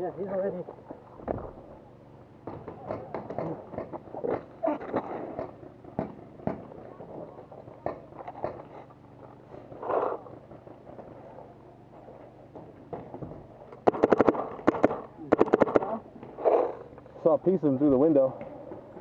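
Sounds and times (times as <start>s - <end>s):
paintball markers firing: 13.8s - 16.0s.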